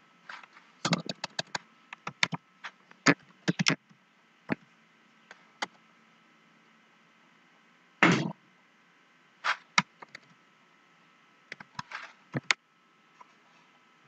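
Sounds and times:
computer keyboard keystrokes: 0:00.9 - 0:02.4.

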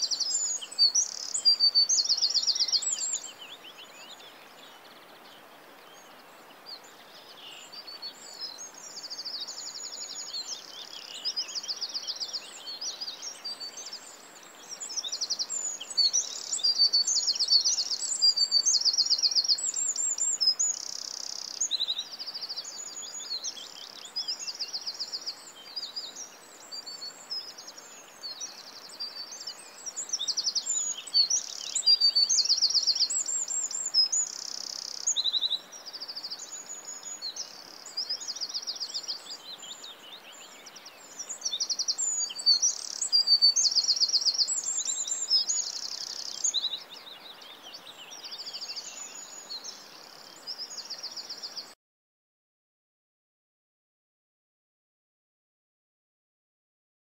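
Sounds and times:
birds chirping and trilling: 0:00.0 - 0:05.4, 0:07.6 - 0:51.8
faint steady hiss: 0:00.0 - 0:51.8.

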